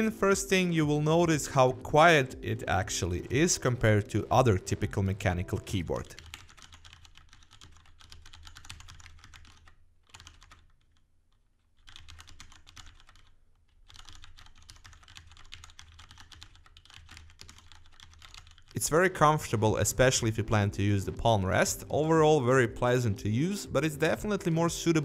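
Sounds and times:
mechanical keyboard typing: 2.6s - 11.0s, 11.8s - 18.8s.

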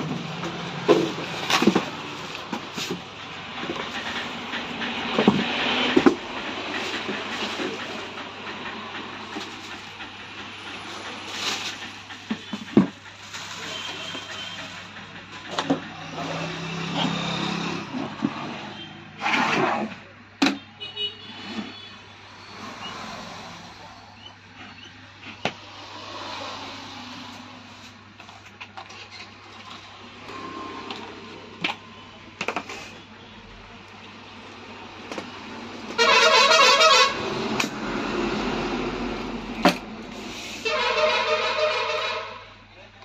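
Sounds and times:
vehicle horn honking: 13.6s - 14.8s, 20.7s - 22.0s, 36.0s - 37.3s, 40.6s - 42.6s.

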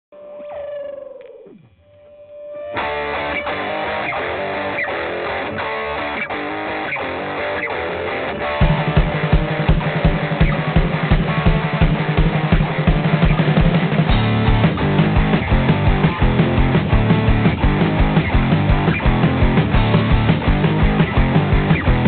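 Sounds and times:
guitar music: 0.2s - 22.0s
bass and drums beat: 7.6s - 22.0s.

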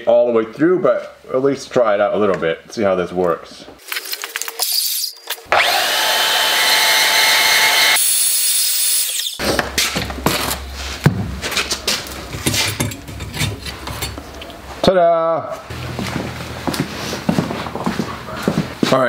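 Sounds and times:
band saw cutting metal: 4.8s - 9.4s.

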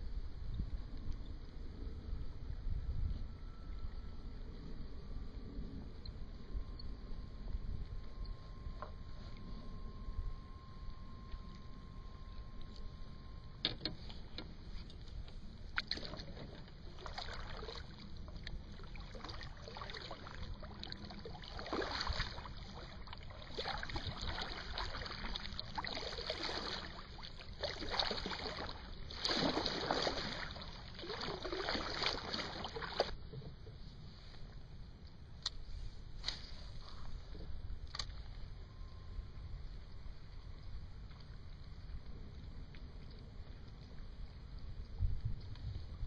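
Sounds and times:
low rumble: 0.0s - 46.0s
paddle strokes splashing water: 14.0s - 33.2s.

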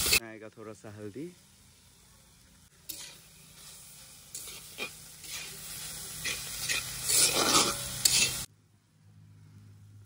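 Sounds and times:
faint sizzle: 0.0s - 10.0s
metal spatula scraping iron pan: 2.9s - 3.3s, 4.3s - 8.5s.

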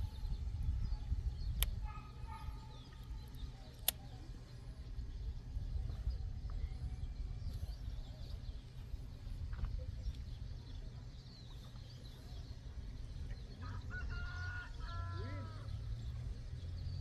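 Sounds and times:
wind buffeting microphone: 0.0s - 17.0s
loud bird call: 13.6s - 16.2s.

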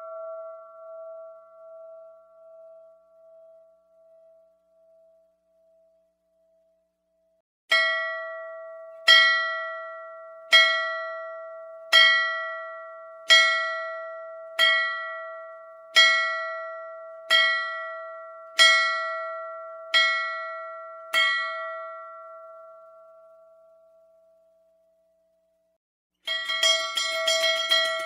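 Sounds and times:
bell struck ringing: 26.3s - 28.0s.

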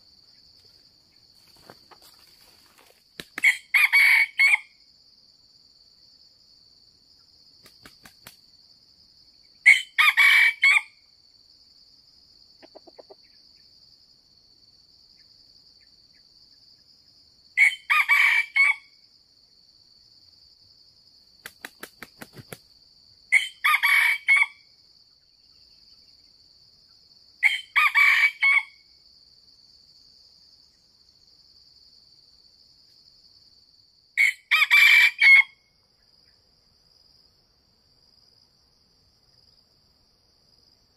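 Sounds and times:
insects buzzing: 0.0s - 40.9s
rooster crowing: 3.4s - 4.7s, 9.6s - 10.9s, 17.6s - 18.9s, 23.3s - 24.6s, 27.4s - 28.8s, 34.2s - 35.6s.

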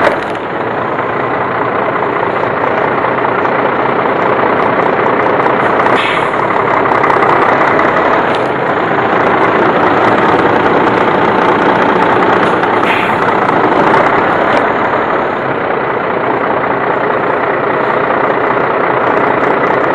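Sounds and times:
truck diesel engine running: 0.0s - 19.9s
short air hisses: 6.0s - 6.4s.

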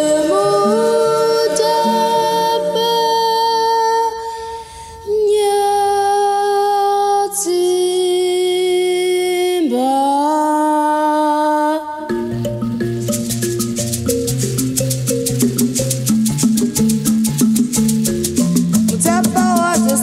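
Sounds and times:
person singing long notes: 0.0s - 4.5s, 18.9s - 20.0s
band playing steady rhythm: 12.1s - 20.0s
shaker: 12.1s - 20.0s.

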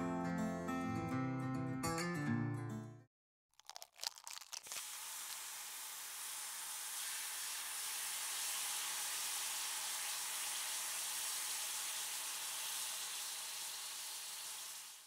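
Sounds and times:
egg sizzling in frying pan: 3.6s - 15.0s.

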